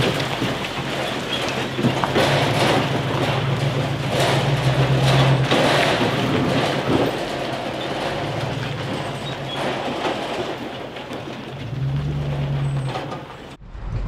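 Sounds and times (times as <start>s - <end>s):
trailer rattling and clattering: 0.0s - 14.0s
vehicle engine running: 0.0s - 14.0s.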